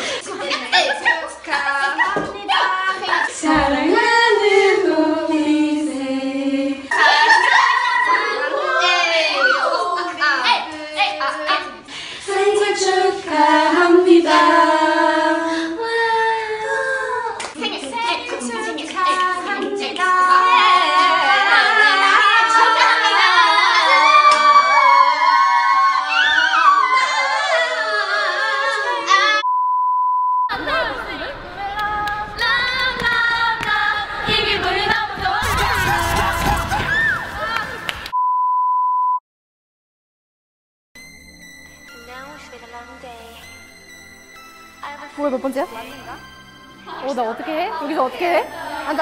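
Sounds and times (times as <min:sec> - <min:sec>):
women singing together: 0:00.9 - 0:08.8, 0:11.8 - 0:17.6, 0:18.2 - 0:29.4, 0:30.5 - 0:36.9.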